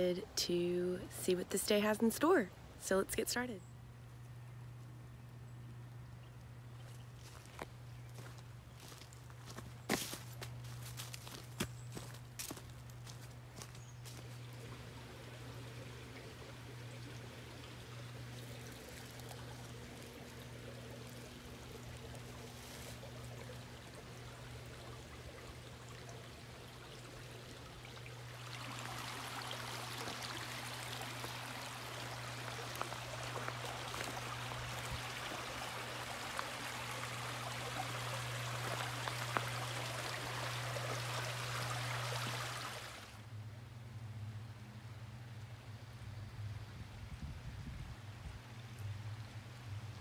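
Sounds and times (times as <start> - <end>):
low hum: 3.6 - 50.0
creek babbling over rocks: 12.4 - 43.2.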